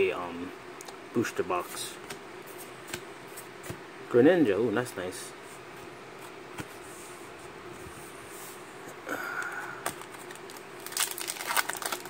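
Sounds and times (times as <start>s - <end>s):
foil wrapper crinkling and tearing: 10.0s - 12.0s.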